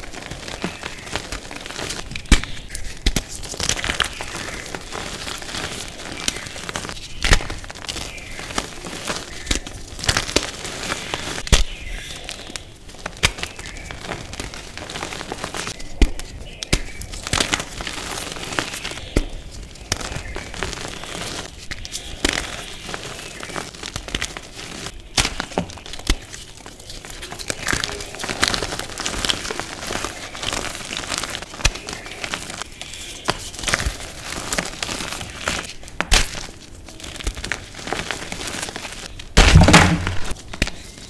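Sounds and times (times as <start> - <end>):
chalk chunks snapping: 0.0 - 41.0.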